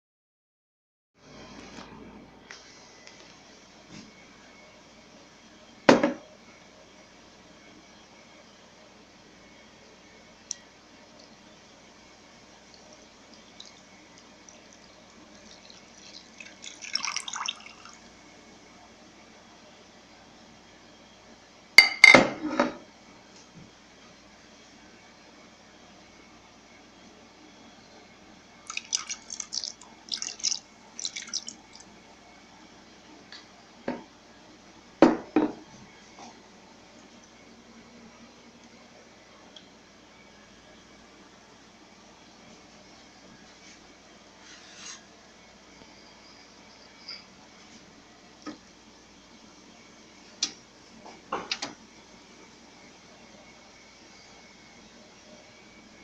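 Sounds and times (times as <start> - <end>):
beer pouring and splashing: 12.6 - 18.1, 28.6 - 31.9.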